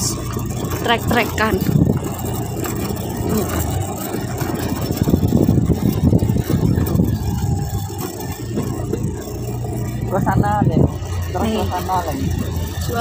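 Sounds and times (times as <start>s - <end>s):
motorcycle engine rumbling: 0.0s - 13.0s
tyres on gravel: 0.0s - 13.0s.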